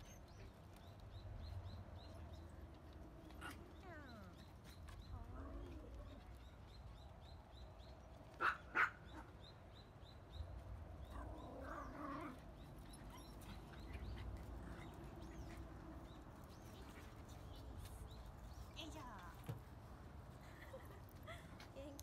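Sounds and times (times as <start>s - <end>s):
dog barking: 8.4s - 9.3s.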